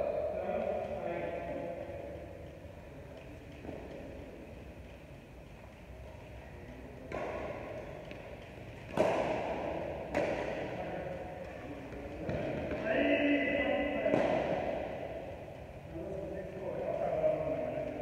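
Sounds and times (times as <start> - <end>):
badminton rackets hitting shuttlecock: 7.1 - 12.8, 13.8 - 15.5.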